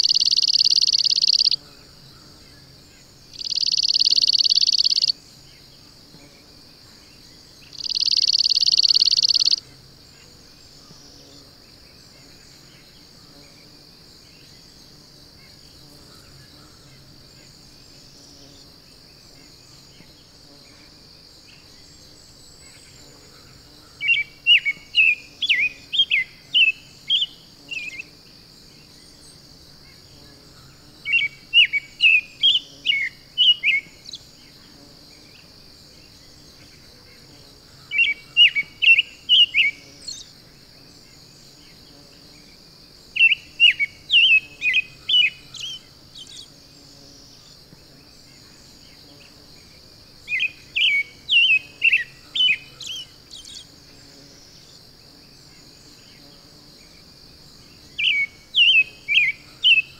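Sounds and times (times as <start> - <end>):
high insect drone: 0.0 - 59.9
songbird singing: 0.0 - 59.9.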